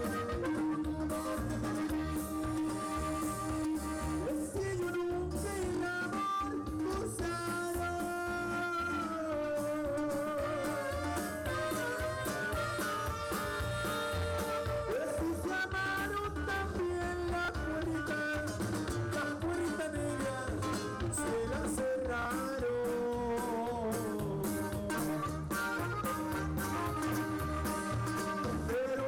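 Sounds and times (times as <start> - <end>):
live band playing dance music: 0.0 - 29.0.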